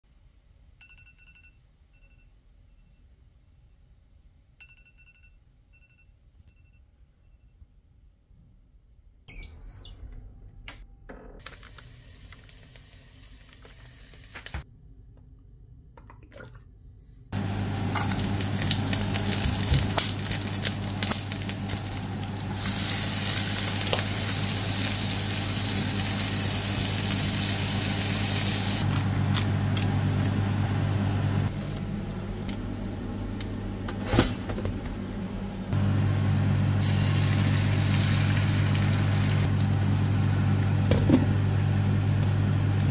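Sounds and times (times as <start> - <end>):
prawns sizzling in a pan: 17.4 - 28.9, 35.9 - 39.5.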